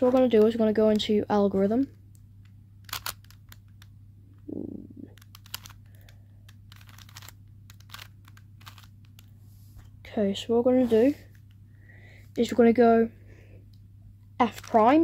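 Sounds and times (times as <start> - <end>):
faint low hum: 0.0 - 15.0
plastic puzzle cube clicking: 2.8 - 3.9, 5.1 - 9.3.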